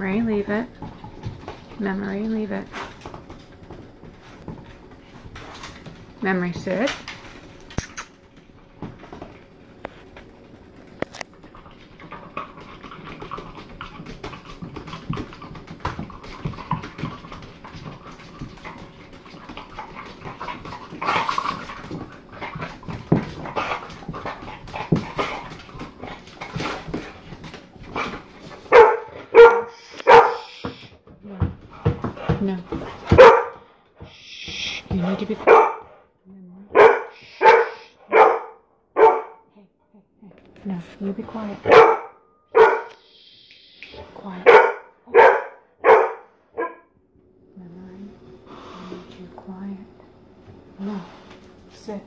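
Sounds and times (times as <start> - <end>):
dog barking loudly: 28.7 - 30.8, 33.1 - 33.6, 34.9 - 35.9, 36.7 - 39.4, 41.6 - 43.0, 44.4 - 46.8
dog heavy breathing: 29.3 - 30.9, 31.6 - 36.1, 36.8 - 38.1
claws scraping on tile floor: 29.7 - 31.0.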